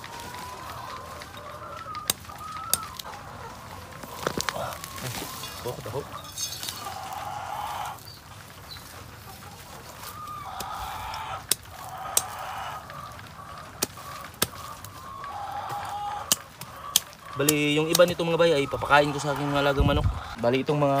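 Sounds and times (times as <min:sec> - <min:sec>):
chickens calling: 0:00.0 - 0:21.0.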